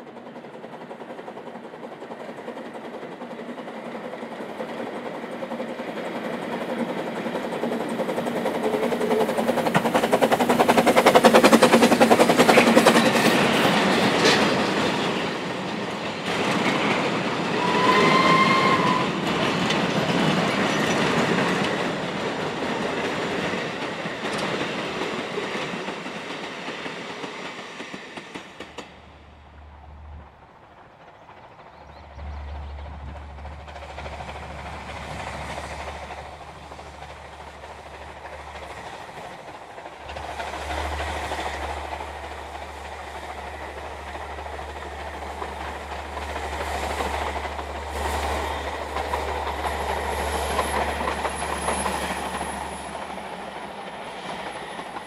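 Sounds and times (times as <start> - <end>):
steam train passing: 0.0 - 55.0
train whistle blast: 17.6 - 19.2.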